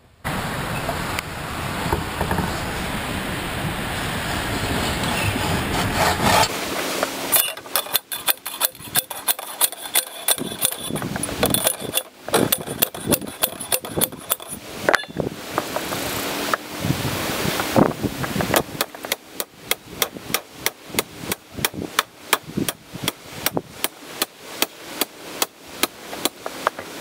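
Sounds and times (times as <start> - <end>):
steady rushing noise: 0.0 - 27.0
metallic post driver strikes: 7.3 - 15.1.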